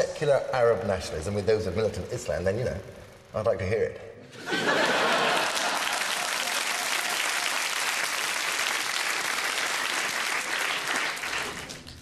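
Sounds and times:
audience applauding: 5.0s - 12.0s.

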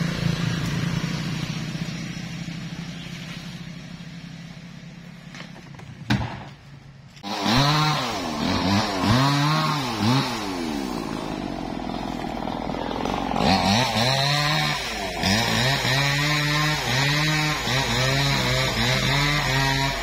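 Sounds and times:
chainsaw engine revving: 0.0s - 5.1s, 7.2s - 20.0s.

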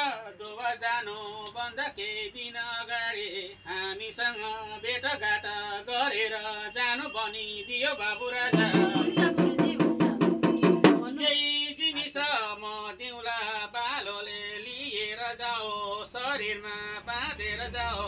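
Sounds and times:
man chanting melodically: 2.8s - 9.9s
fast steady drum beat: 8.5s - 11.2s.

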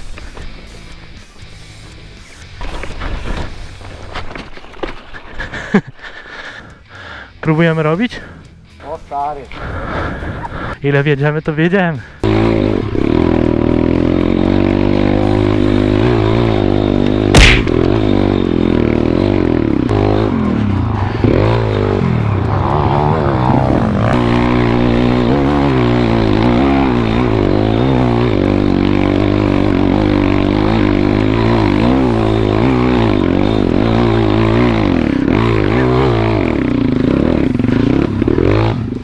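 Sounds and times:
motorbike engine revving: 12.2s - 39.0s.

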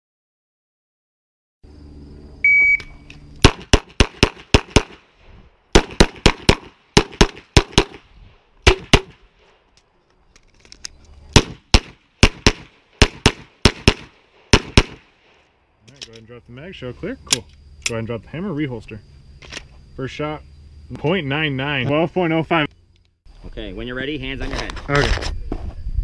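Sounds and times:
shot timer beep: 2.4s - 3.0s
pistol firing rapid shots: 3.4s - 5.0s, 5.7s - 8.0s, 8.7s - 9.2s, 11.4s - 15.0s.

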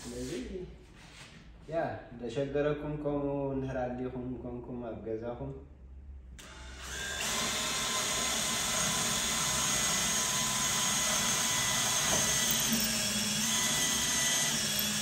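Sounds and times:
cordless drill boring wood: 6.4s - 15.0s.

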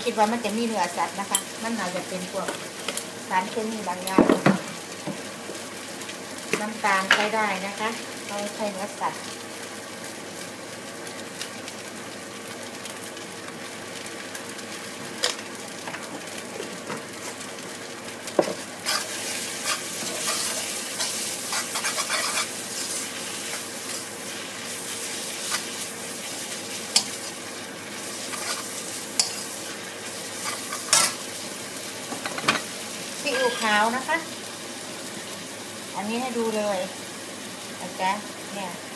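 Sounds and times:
liquid boiling off in steam: 0.0s - 38.9s
noodles sizzling in a wok: 0.0s - 38.9s
metal spatula scraping pan: 18.8s - 24.0s.

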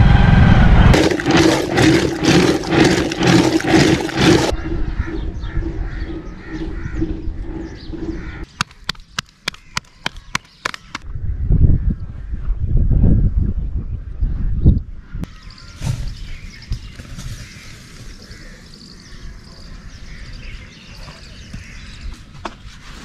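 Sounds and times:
birds chirping: 0.9s - 11.1s, 14.2s - 22.5s
churn stick sloshing in yogurt: 1.0s - 4.5s
sharp clicks: 8.6s - 11.0s.

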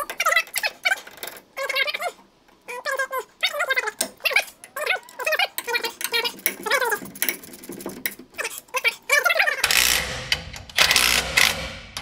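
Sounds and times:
metallic tool clicks: 9.6s - 12.0s.

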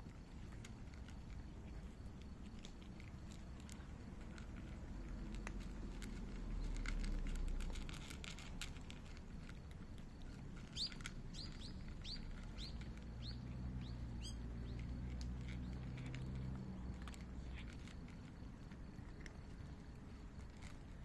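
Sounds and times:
cat crunching kibble: 0.0s - 21.0s
low steady hum: 0.0s - 21.0s
bird chirping: 10.6s - 15.0s.

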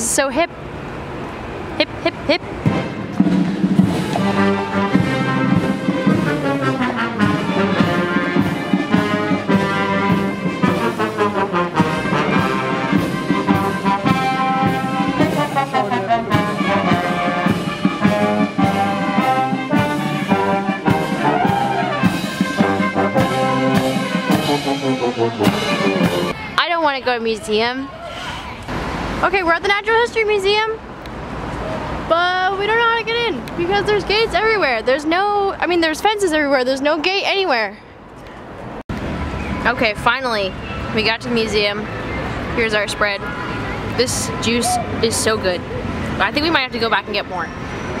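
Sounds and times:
brass band playing a march: 2.6s - 26.4s.

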